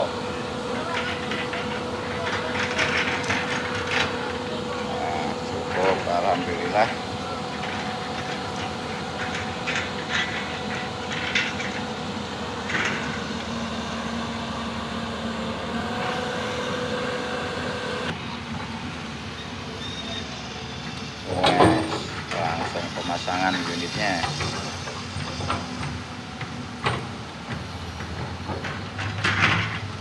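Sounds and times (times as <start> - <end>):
diesel engine running: 0.0 - 30.0
hydraulic whine: 0.0 - 30.0
short metal clanks: 21.3 - 23.1.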